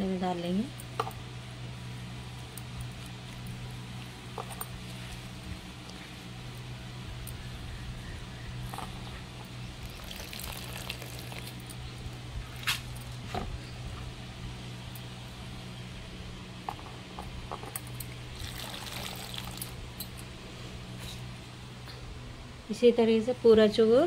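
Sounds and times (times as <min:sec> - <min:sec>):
low hum: 0:00.0 - 0:24.0
water dripping and trickling: 0:09.7 - 0:11.8, 0:18.0 - 0:20.1.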